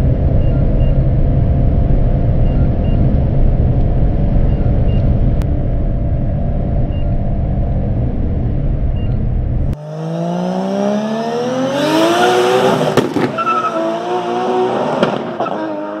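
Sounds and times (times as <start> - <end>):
car engine revving: 0.0 - 16.0
road and wind noise: 0.0 - 16.0.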